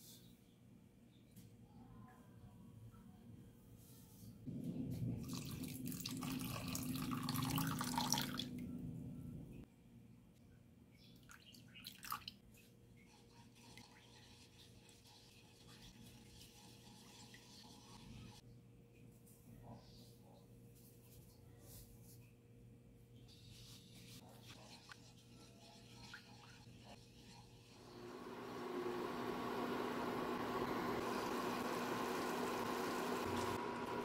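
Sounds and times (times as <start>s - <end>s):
spatula scraping and stirring: 13.0s - 18.4s, 23.4s - 27.8s.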